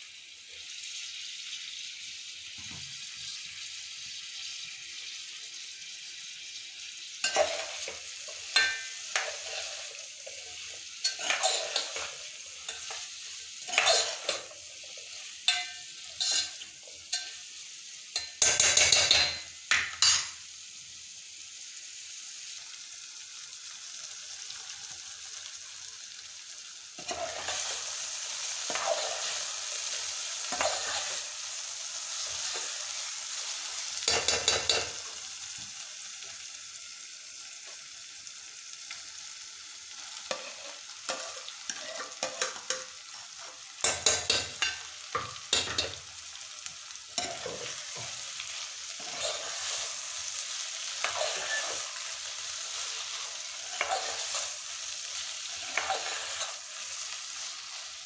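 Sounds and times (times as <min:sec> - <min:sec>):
peppers sizzling in oil: 0:00.0 - 0:58.0
metal spoon scraping a pot: 0:07.2 - 0:13.0, 0:13.6 - 0:14.5, 0:15.5 - 0:17.3, 0:27.0 - 0:27.8, 0:30.5 - 0:31.2, 0:49.0 - 0:49.8, 0:51.0 - 0:52.0, 0:53.6 - 0:54.5, 0:55.4 - 0:56.6.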